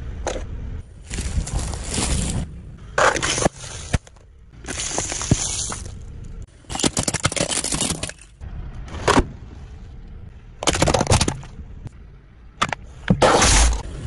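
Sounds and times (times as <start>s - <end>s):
plastic packaging crunching under tyre: 1.0s - 8.4s
sharp crack: 12.7s - 13.9s.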